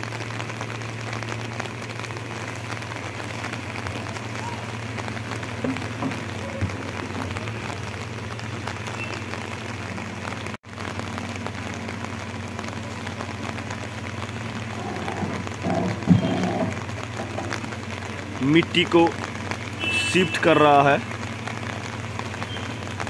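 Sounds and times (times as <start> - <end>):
diesel engine humming: 0.0 - 23.0
rain pattering: 0.0 - 23.0.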